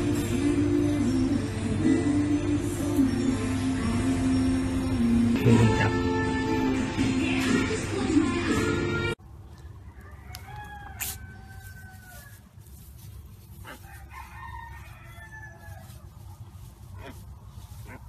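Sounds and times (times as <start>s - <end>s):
farm animal calls: 9.8s - 18.0s.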